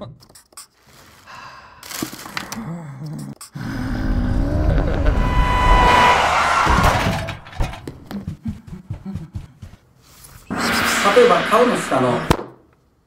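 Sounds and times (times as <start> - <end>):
tire squeal: 3.8 - 7.9
soft low thumps: 7.8 - 9.8.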